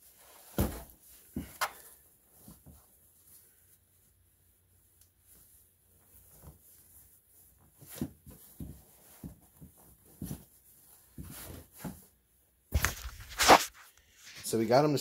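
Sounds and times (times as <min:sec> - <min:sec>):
rustling of handled doll: 0:00.0 - 0:15.0
soft bumps: 0:00.4 - 0:01.7.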